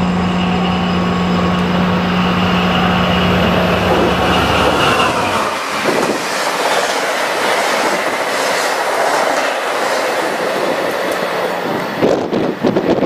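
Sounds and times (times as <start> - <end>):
diesel locomotive engine: 0.0 - 13.0
train coaches rushing past: 0.0 - 13.0
wheels clickety-clack over rails: 3.2 - 13.0.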